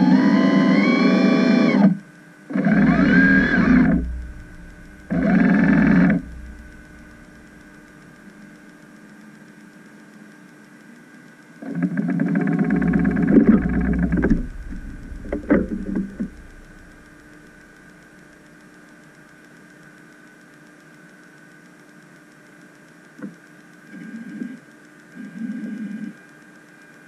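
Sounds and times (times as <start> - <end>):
electric thruster motors whirring: 0.0 - 8.5, 11.7 - 18.7
faint hum: 0.0 - 27.0.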